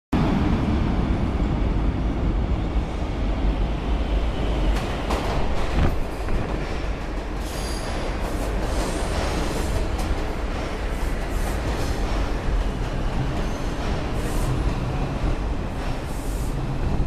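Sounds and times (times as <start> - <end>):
subway train rumbling: 0.1 - 17.0
train wheels clacking: 4.7 - 16.8.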